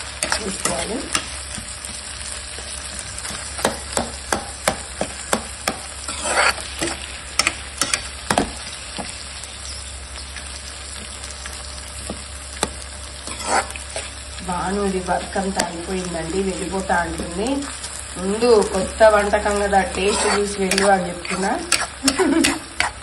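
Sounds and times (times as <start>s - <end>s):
vegetables sizzling in oil: 0.0s - 23.0s
metal spatula scraping pan: 6.0s - 8.1s, 13.2s - 14.2s, 19.2s - 23.0s.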